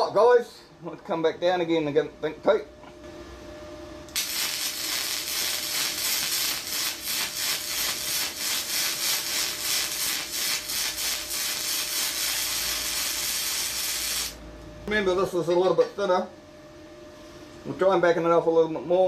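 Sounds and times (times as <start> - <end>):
welding arc crackling and popping: 4.1 - 14.4.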